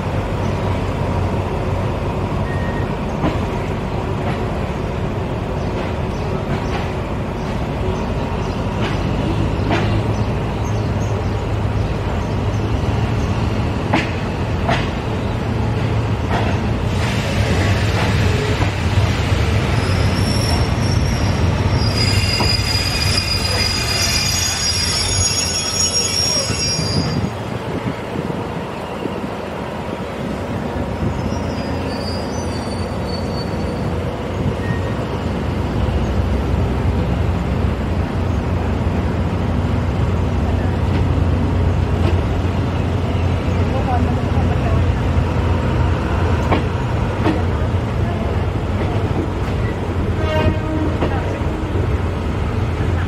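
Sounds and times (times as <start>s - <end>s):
train carriage rumbling: 0.0s - 53.0s
train wheels squealing: 2.4s - 3.0s, 19.6s - 27.4s, 31.1s - 35.4s.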